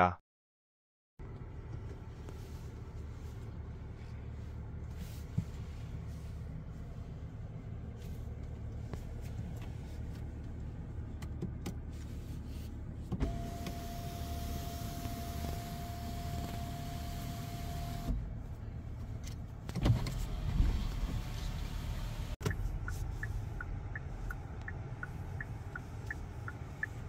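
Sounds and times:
car cabin low rumble: 1.2 - 27.0.

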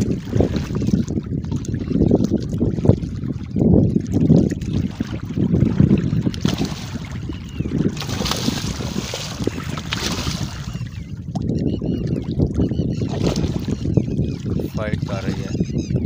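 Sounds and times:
wind rumble on microphone: 0.0 - 16.0
fish splashing in water: 4.1 - 11.4, 12.7 - 13.9.

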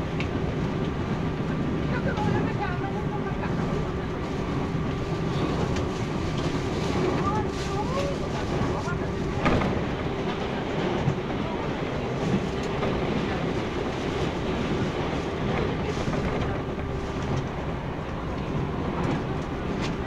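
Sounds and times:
constant hum: 0.0 - 20.0
train wheels rumbling on rail: 0.0 - 20.0
rail joint clicks: 3.5 - 20.0.

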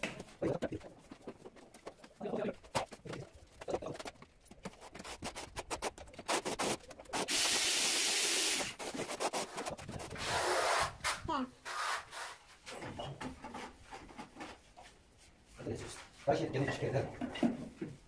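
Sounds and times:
trowel scraping adhesive on floor: 4.7 - 12.6.

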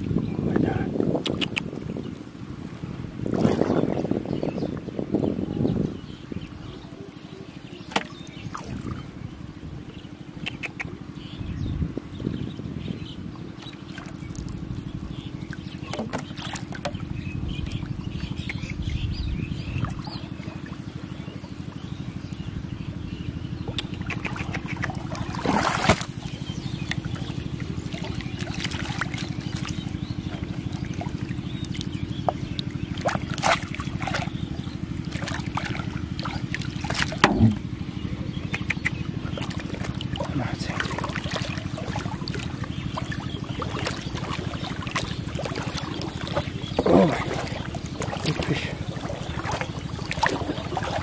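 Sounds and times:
steady low hum: 0.0 - 51.0
water splashing: 3.2 - 4.2, 7.8 - 9.2, 13.5 - 18.8, 23.6 - 51.0.

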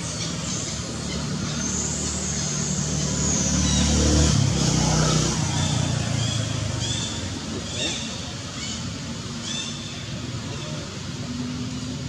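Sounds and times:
vehicle engine passing: 1.4 - 7.8.

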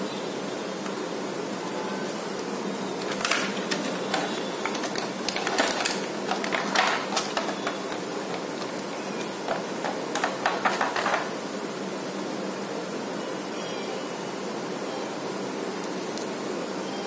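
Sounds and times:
steady background hum: 0.0 - 17.0
plastic tray crackling: 2.9 - 11.4.

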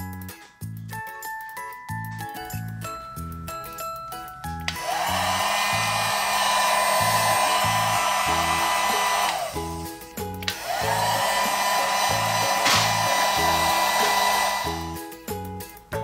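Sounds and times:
toy hair dryer whirring: 4.6 - 15.1.

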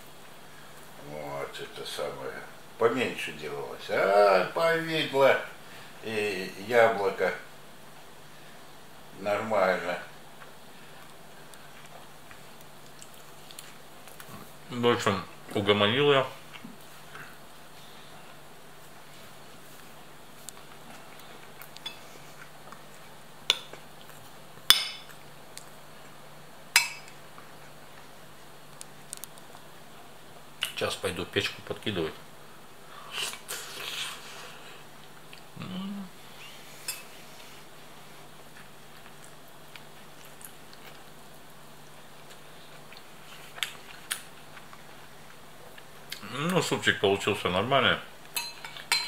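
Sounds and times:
faint low hum: 0.0 - 49.0
dishes clinking: 48.4 - 49.0.

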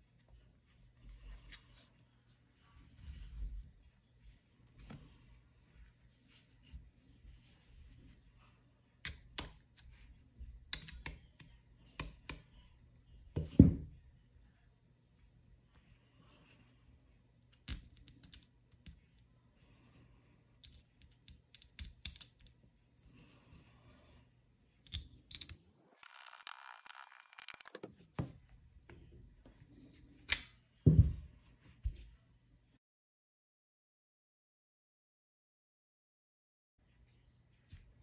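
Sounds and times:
light clicks and taps of tools: 20.6 - 22.6.

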